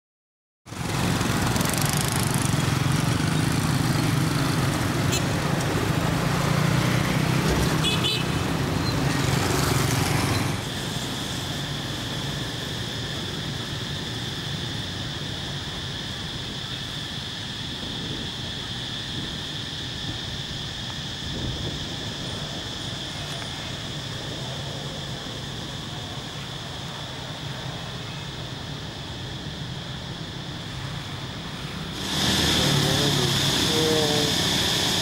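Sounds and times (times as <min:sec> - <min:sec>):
motorbike engines passing: 0:00.7 - 0:16.9, 0:21.3 - 0:35.0
horn toot: 0:07.6 - 0:08.6
high-pitched drone: 0:31.8 - 0:35.0.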